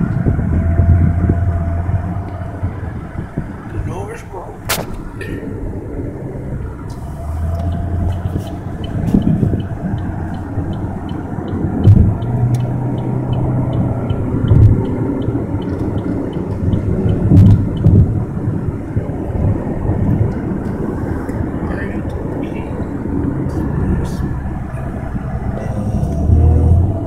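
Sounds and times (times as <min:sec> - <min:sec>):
car engine and tyre rumble: 0:00.0 - 0:27.0
dull thump: 0:04.6 - 0:05.3.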